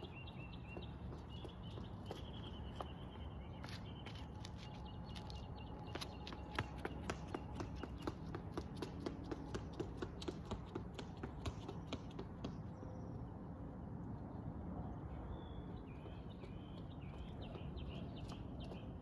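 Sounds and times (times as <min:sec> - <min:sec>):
bird chirping: 0:00.0 - 0:08.4, 0:15.1 - 0:19.0
running footsteps on concrete stairs: 0:00.3 - 0:03.0, 0:05.2 - 0:12.8.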